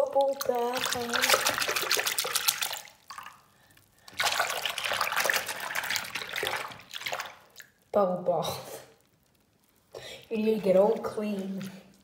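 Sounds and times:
water sloshing in a sink: 0.0 - 7.8, 10.2 - 12.0.

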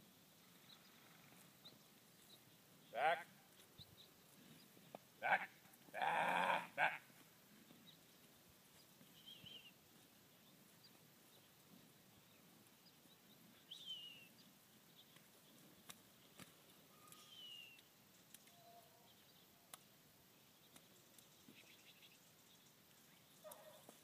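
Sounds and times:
falling bird chirps: 16.2 - 19.2.

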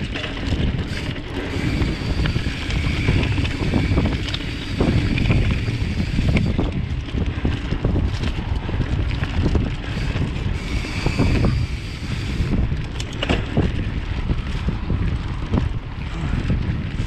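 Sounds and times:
bike rattling over bumps: 0.0 - 17.0
bike tyre rumble on dirt: 0.0 - 17.0
wind buffeting microphone: 0.0 - 17.0.

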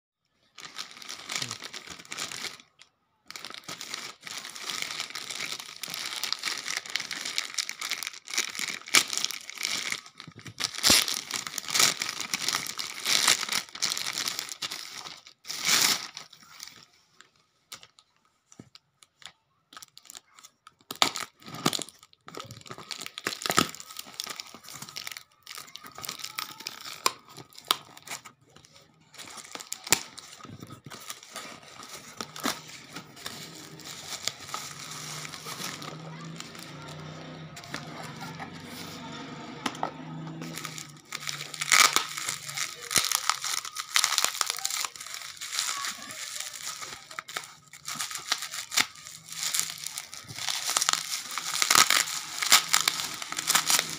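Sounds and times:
plastic bags crinkling and tearing: 0.4 - 16.9, 17.7 - 53.9
packing tape cut and torn: 29.2 - 53.9.

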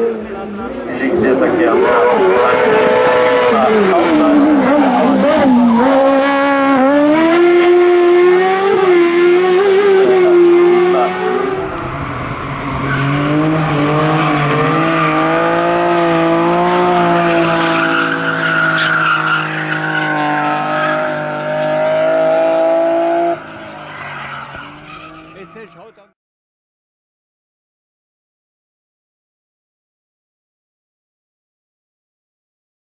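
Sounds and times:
race car engines revving: 0.0 - 26.1
tyre squeal: 16.7 - 21.3, 23.7 - 25.6.

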